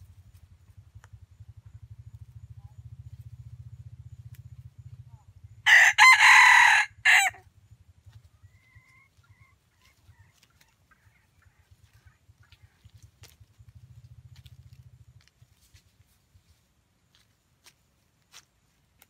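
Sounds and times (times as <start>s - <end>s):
rooster crowing: 5.6s - 7.4s.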